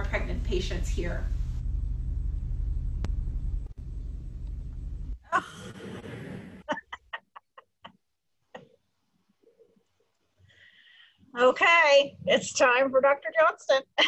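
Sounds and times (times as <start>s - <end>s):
steady low hum: 0.0s - 7.9s
burst of noise: 1.2s - 6.7s.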